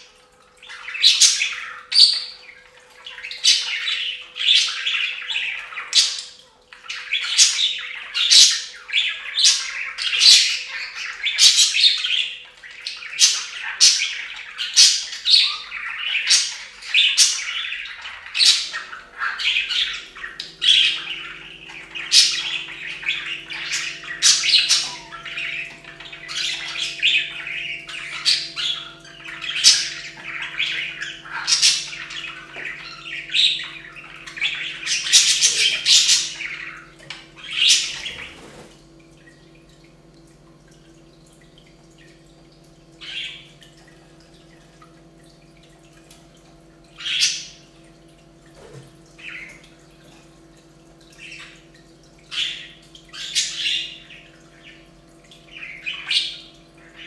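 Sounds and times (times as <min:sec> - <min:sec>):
budgerigars chattering: 0:03.0 - 0:38.6.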